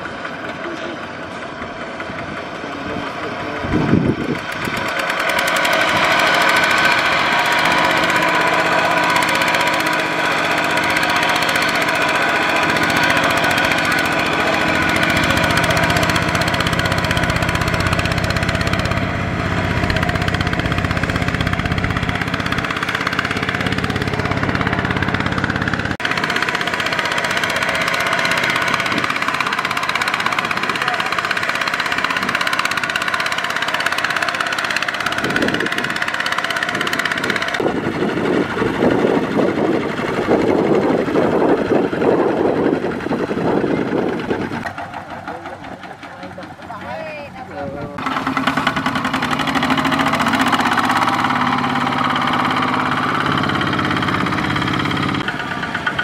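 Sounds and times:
diesel tractor engine running: 0.0s - 56.0s.

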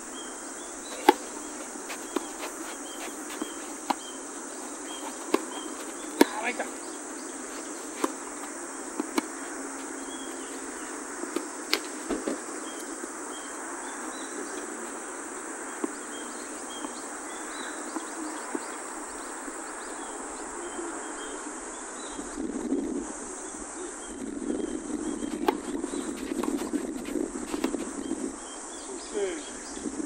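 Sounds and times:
insects droning: 0.0s - 30.0s
tennis ball struck with rackets: 0.9s - 6.8s, 7.5s - 9.4s, 25.4s - 26.8s.

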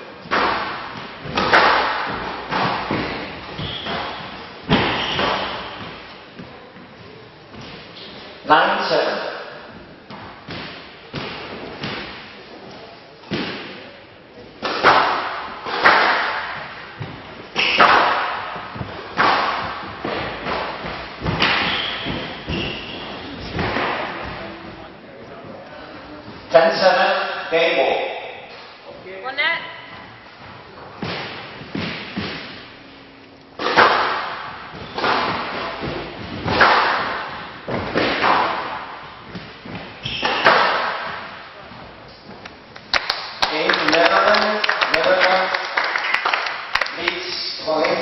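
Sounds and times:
squash ball hits echoing: 0.2s - 6.6s, 9.0s - 12.4s, 13.2s - 14.0s, 14.6s - 24.9s, 30.8s - 32.9s, 33.5s - 41.9s.

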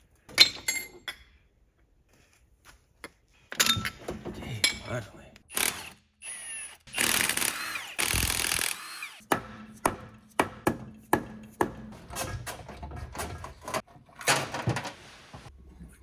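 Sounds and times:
cordless drill running: 5.5s - 9.2s.

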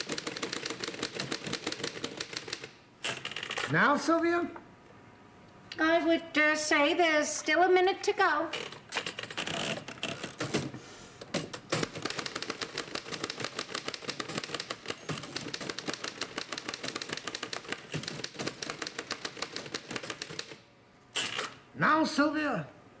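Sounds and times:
typewriters clattering: 0.0s - 3.7s, 11.4s - 20.6s.

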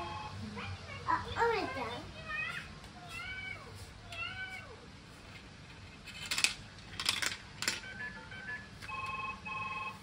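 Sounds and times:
plastic track pieces clattering: 6.0s - 7.8s.

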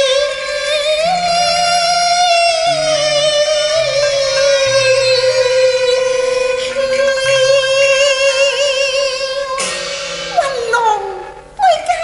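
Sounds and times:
woman singing opera: 0.0s - 9.6s
instrumental accompaniment: 0.0s - 12.0s.

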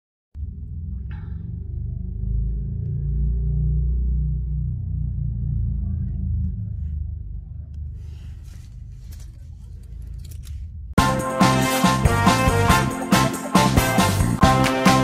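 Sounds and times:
rustling: 7.9s - 10.8s.

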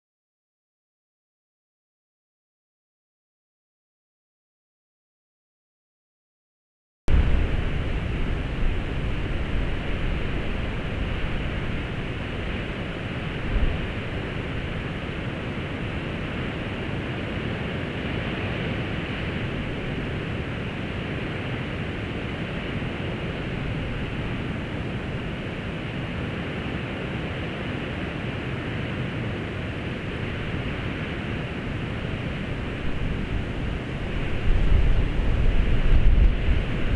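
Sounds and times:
distant diesel locomotive rumble: 7.1s - 17.3s
wind hissing: 7.1s - 36.9s.

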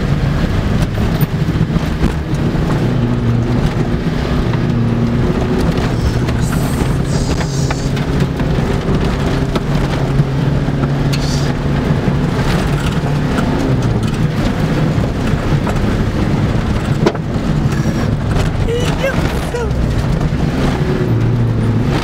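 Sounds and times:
diesel car engine running: 0.0s - 22.0s
tyre and road rumble: 0.0s - 22.0s
clicks and rattles: 12.4s - 22.0s.

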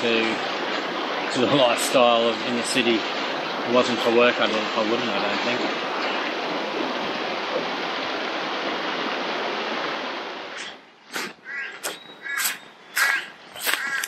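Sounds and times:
river water rushing over rapids: 0.0s - 11.1s
crow cawing: 11.4s - 14.0s.

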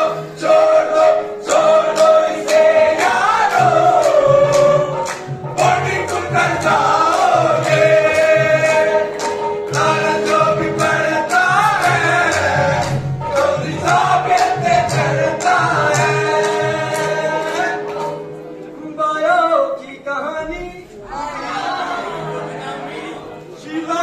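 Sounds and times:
rhythmic handclaps: 0.0s - 18.4s
group of men singing: 0.0s - 24.0s.

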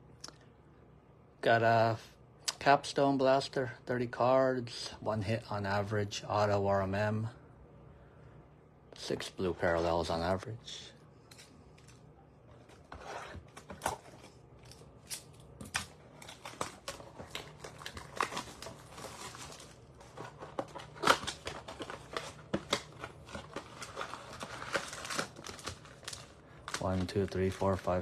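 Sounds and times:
cardboard crinkling and tearing: 15.7s - 28.0s.

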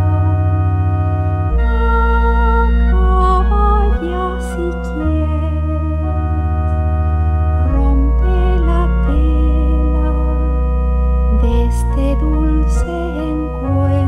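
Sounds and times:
deep bass line: 0.0s - 14.0s
organ playing chords: 0.0s - 14.0s.

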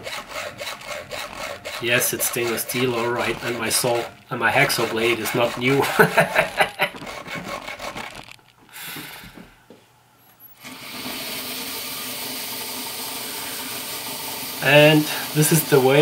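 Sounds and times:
hacksaw cutting metal: 0.0s - 8.2s, 11.7s - 16.0s
belt grinder running: 0.0s - 8.4s, 10.6s - 16.0s.

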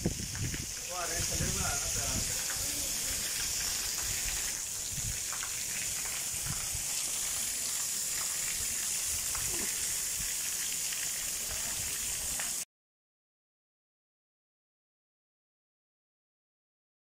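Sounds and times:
water sprinklers spraying: 0.0s - 12.7s.

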